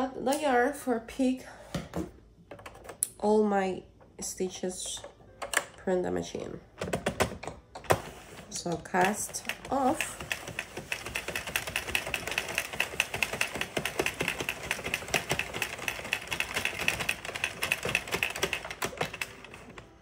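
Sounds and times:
person speaking: 0:08.5 - 0:10.4
knitting machine needles clicking: 0:08.6 - 0:20.0.

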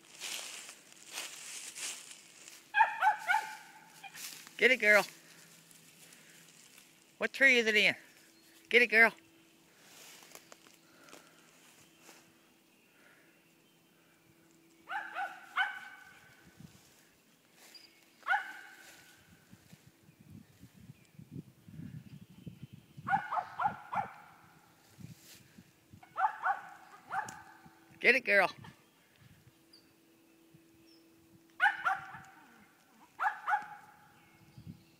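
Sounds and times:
dog barking: 0:02.7 - 0:04.2, 0:14.9 - 0:16.2, 0:18.2 - 0:18.8, 0:23.1 - 0:24.4, 0:26.0 - 0:27.6, 0:31.6 - 0:32.5, 0:33.1 - 0:34.0.

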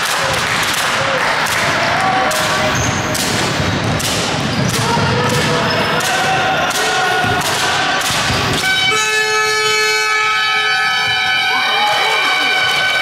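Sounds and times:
voices echoing: 0:00.9 - 0:13.0
basketball bouncing on hardwood floor: 0:02.7 - 0:05.8
horn-like buzzer: 0:08.5 - 0:13.0.

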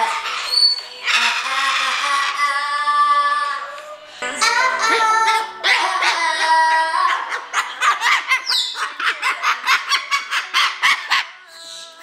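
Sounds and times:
cockatoo rhythmic calls: 0:00.0 - 0:02.5, 0:05.1 - 0:12.0.

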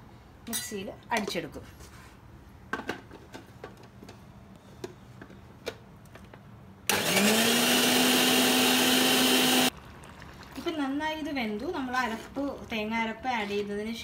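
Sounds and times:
mixer grinder motor whining: 0:06.9 - 0:09.7.

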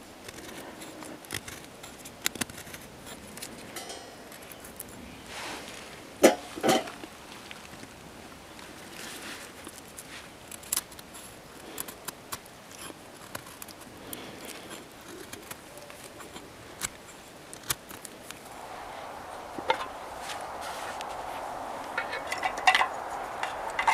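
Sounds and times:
knife shaving wood: 0:00.0 - 0:06.0, 0:08.6 - 0:18.4.

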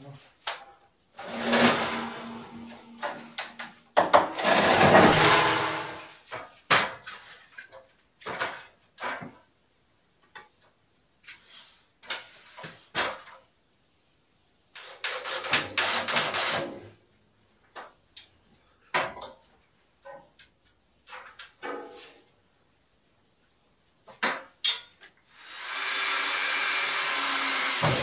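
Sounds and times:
heavy stove scraping on wooden boards: 0:01.2 - 0:03.4
scattered knocks and clatter: 0:03.0 - 0:06.1.

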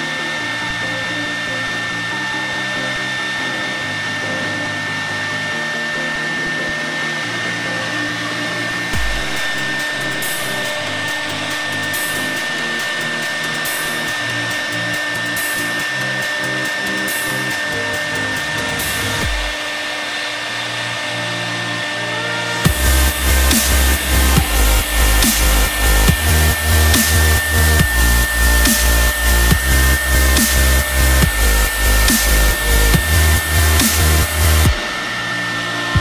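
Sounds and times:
router spindle motor whine: 0:00.0 - 0:36.0
cutter hiss: 0:08.9 - 0:19.6, 0:22.6 - 0:36.0.

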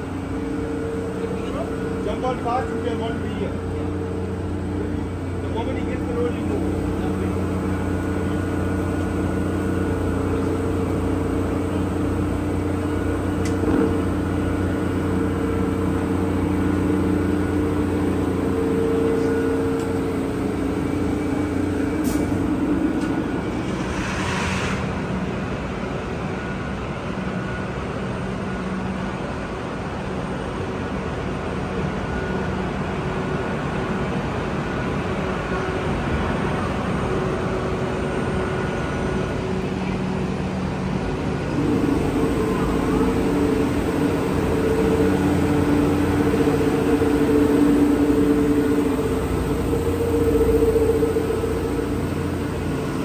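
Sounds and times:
locomotive electrical hum: 0:00.0 - 0:53.0
brief hiss: 0:23.7 - 0:25.0.

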